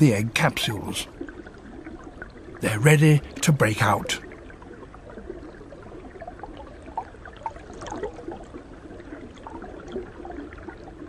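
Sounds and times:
water gurgling with bubbly pops: 0:04.2 - 0:11.0.

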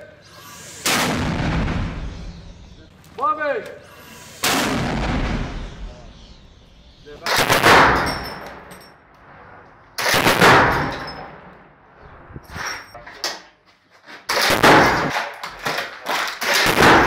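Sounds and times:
mortar firing boom: 0:00.8 - 0:02.8, 0:04.4 - 0:06.5, 0:07.2 - 0:08.2.

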